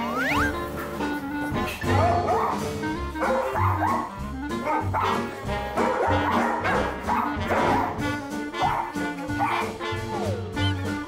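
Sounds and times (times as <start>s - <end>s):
background music with steady beat: 0.0s - 11.0s
small dogs yipping and barking: 1.8s - 8.0s, 8.6s - 10.3s.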